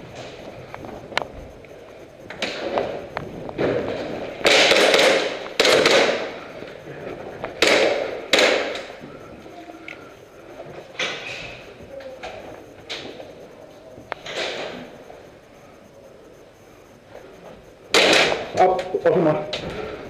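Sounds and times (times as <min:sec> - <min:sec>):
airsoft gun bursts: 0:04.4 - 0:06.4, 0:07.6 - 0:09.0.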